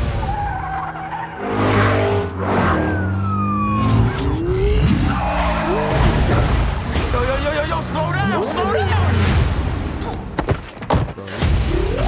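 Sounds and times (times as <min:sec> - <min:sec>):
car engines revving: 0:00.0 - 0:10.0
police siren wailing: 0:00.2 - 0:06.4.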